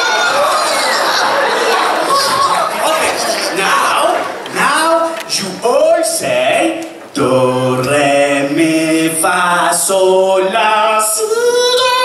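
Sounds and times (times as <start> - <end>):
vocal group singing a cappella: 4.5 - 12.0.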